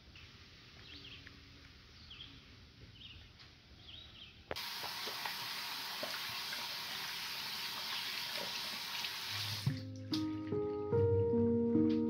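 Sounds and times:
tap water splashing over hands: 0:04.6 - 0:07.0, 0:07.7 - 0:10.6.

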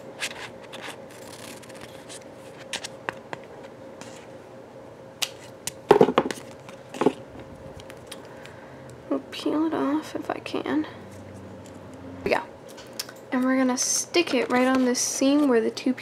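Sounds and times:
paper handling: 0:00.2 - 0:04.3.

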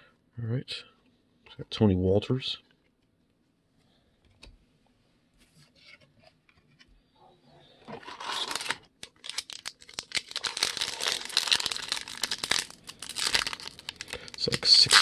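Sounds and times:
wrapper tearing and crinkling: 0:08.0 - 0:15.0.

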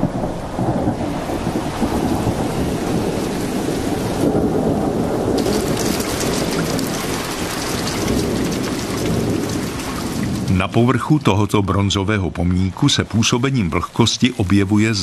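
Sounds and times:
low rumble of thunder: 0:00.0 - 0:11.5
rain: 0:00.0 - 0:15.0
crackle of falling drops: 0:05.3 - 0:11.7.

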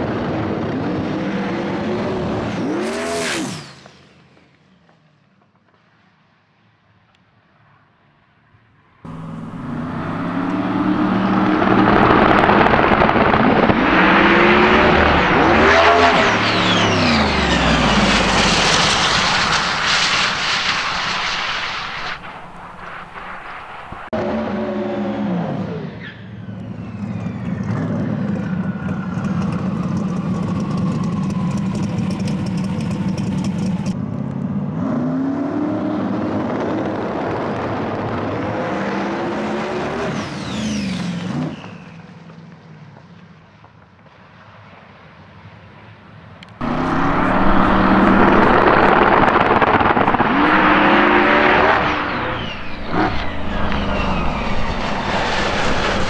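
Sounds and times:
car launching at full throttle: 0:00.1 - 0:04.3, 0:09.1 - 0:32.2, 0:46.6 - 0:56.0
tyres burning out: 0:09.1 - 0:24.5, 0:46.6 - 0:56.0
car engine revving: 0:09.1 - 0:26.0, 0:46.6 - 0:56.0.

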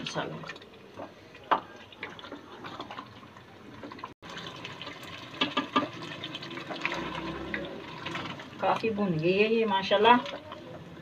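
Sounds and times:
stew sloshing and bubbling: 0:00.0 - 0:11.0.

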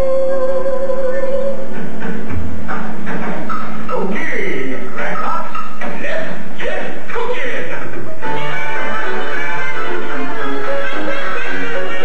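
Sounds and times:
show music over speakers: 0:08.0 - 0:12.0.

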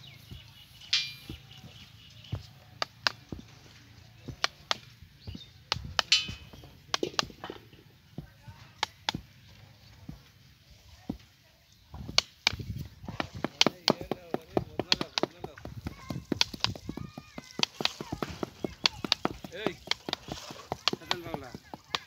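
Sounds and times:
trowel scraping wet sand: 0:17.6 - 0:22.0.

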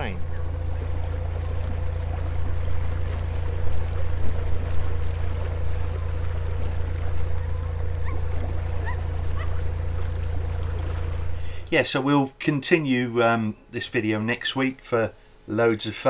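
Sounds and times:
boat engine droning: 0:00.0 - 0:16.0
water moving along hull: 0:00.0 - 0:16.0.

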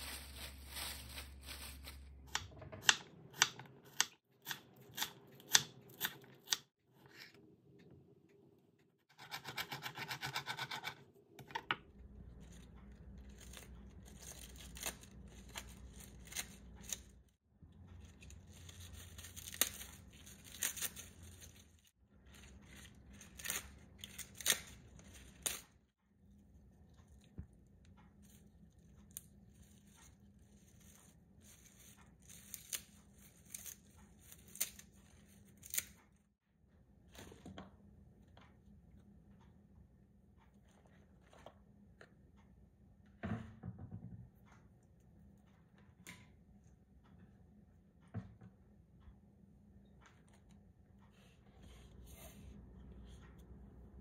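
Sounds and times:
lettuce leaves rustling and snapping: 0:00.0 - 0:02.5, 0:13.0 - 0:17.1, 0:18.0 - 0:25.7.

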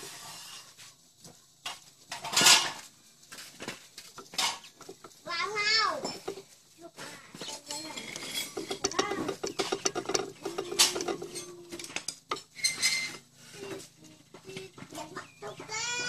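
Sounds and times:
metal clinking and tapping: 0:04.0 - 0:06.6, 0:07.4 - 0:13.3.

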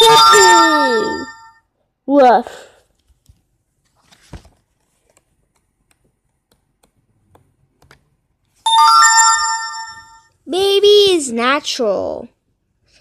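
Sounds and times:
ringing chime: 0:00.0 - 0:01.6, 0:08.7 - 0:10.3
comic book handling noises: 0:02.9 - 0:06.2
paper rustling: 0:03.0 - 0:06.2.

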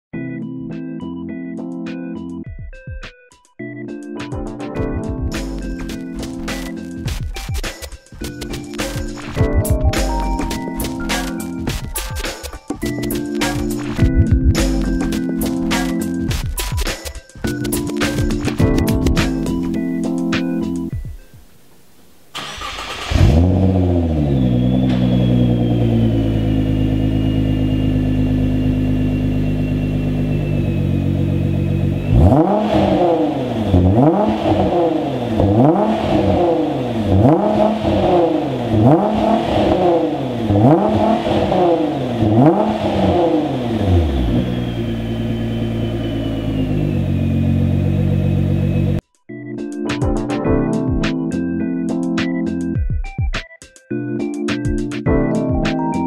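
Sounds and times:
car engine starting and idling: 0:22.3 - 0:49.0
engine revving in throttle blips: 0:22.4 - 0:49.0.

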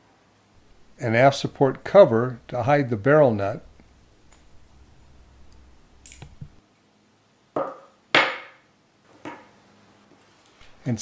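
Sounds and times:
faint clicks of small parts: 0:05.5 - 0:06.6.

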